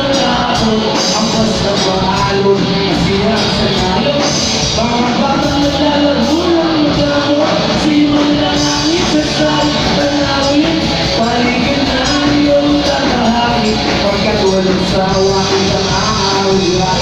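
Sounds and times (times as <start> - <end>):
man singing: 0.0 - 17.0
rock band playing live: 0.0 - 17.0.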